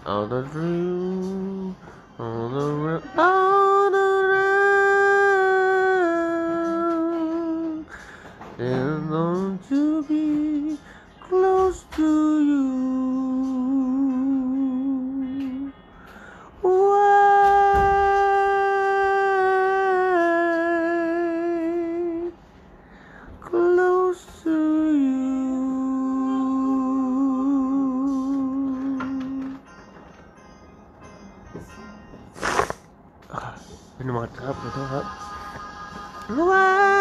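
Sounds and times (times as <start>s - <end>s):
person humming slow melody: 0.0s - 22.4s, 23.4s - 29.8s, 31.0s - 33.4s
breathing: 1.8s - 2.2s, 7.8s - 8.5s, 10.8s - 11.2s, 15.9s - 16.6s, 22.6s - 23.4s.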